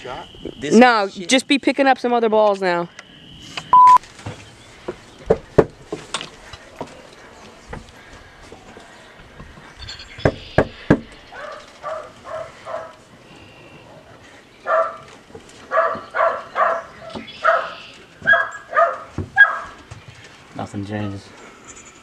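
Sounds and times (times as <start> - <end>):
knocking on door: 10.2 - 11.1
dog barking: 11.3 - 13.0, 14.6 - 15.1, 15.7 - 19.8.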